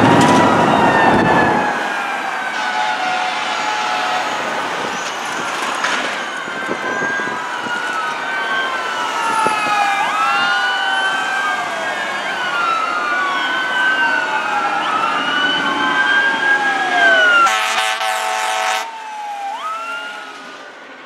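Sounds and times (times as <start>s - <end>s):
fire engine sirens wailing: 0.0s - 21.0s.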